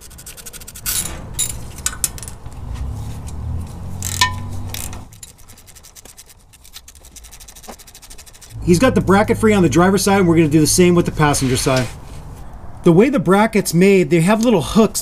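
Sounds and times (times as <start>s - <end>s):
metal scraping: 0.0s - 12.5s
low steady hum: 8.2s - 11.4s.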